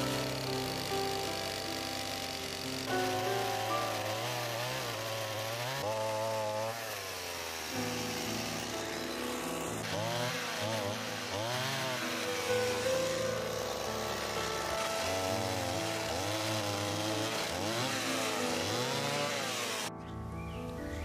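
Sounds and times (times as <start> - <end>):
chainsaw cutting wood: 0.0 - 20.0.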